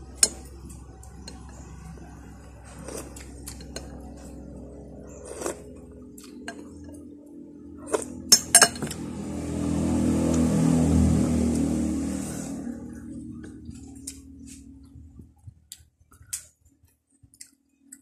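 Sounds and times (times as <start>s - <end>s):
motor vehicle passing: 0.0s - 15.2s.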